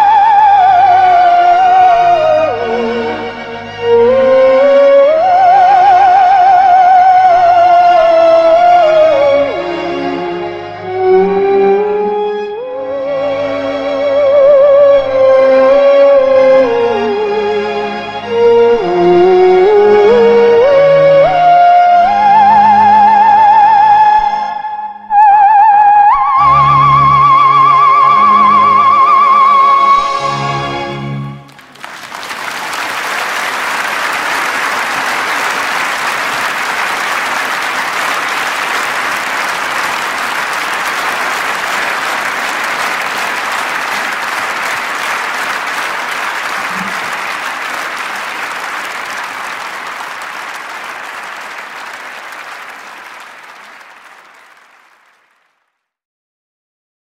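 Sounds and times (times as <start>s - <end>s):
audience applause: 0.0s - 2.7s, 31.4s - 55.6s
music: 0.0s - 32.5s.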